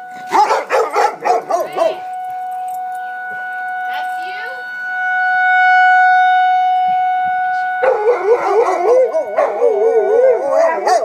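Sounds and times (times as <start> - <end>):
warning siren steady tone: 0.0 - 11.0
dogs howling: 0.2 - 3.1, 7.8 - 11.0.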